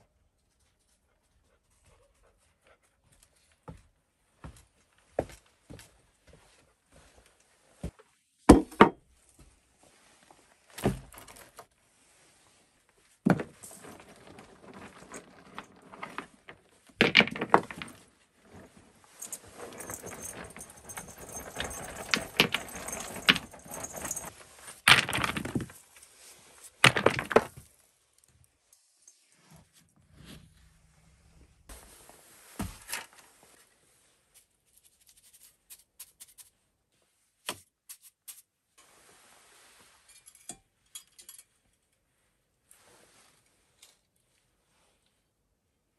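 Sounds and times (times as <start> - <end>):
stones clacking together: 13.3 - 18.1, 24.9 - 25.8, 26.8 - 27.6.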